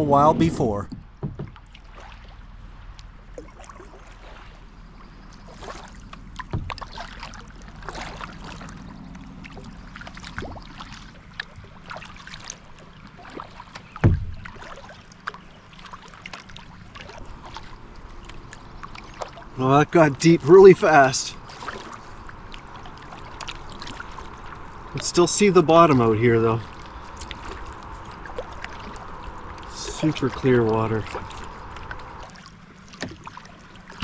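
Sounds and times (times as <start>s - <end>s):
paddle splashing and dripping: 0.0s - 34.0s
dull thump: 0.3s - 1.8s, 6.5s - 6.8s, 14.0s - 14.6s.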